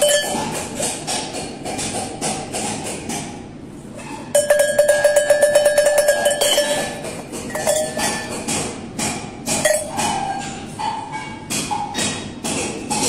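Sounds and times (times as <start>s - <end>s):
sheep bell ringing: 4.4s - 7.0s, 7.6s - 8.2s
clattering handling noise: 4.4s - 8.6s.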